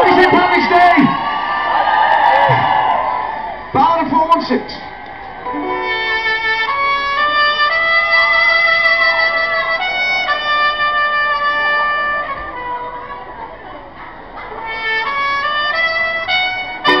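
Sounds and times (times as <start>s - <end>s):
melody of long held notes: 5.4s - 13.8s, 14.5s - 17.0s
live band music: 5.5s - 13.6s, 14.5s - 17.0s.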